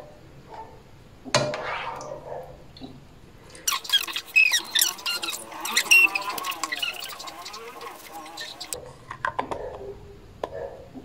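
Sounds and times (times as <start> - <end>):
plastic squeaks and clicks: 3.5 - 8.8.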